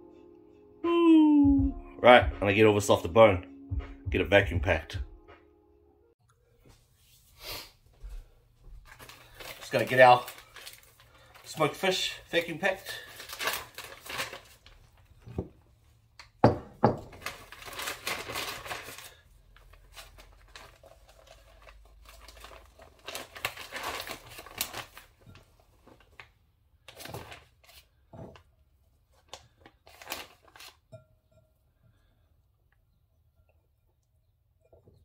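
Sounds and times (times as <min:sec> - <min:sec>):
plastic bag crinkling: 0:08.8 - 0:15.2, 0:17.1 - 0:26.2, 0:29.4 - 0:30.8.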